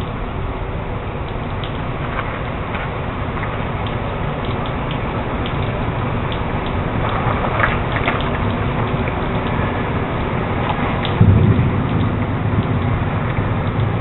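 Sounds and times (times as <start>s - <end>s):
drips and splashes: 0.0s - 14.0s
heavy rain falling: 0.0s - 14.0s.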